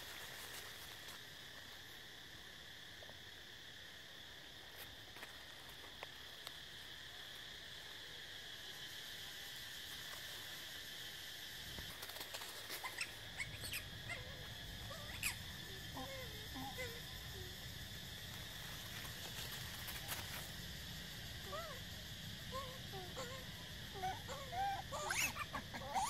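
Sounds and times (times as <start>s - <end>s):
dry leaves rustling: 0.0s - 1.6s, 18.2s - 21.0s
insects buzzing: 0.0s - 26.0s
monkey squeaking: 12.8s - 14.3s, 24.0s - 26.0s.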